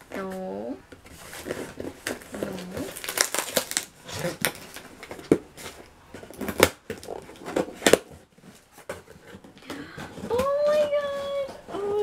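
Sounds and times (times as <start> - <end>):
scissors cutting packing tape: 1.5 - 4.8.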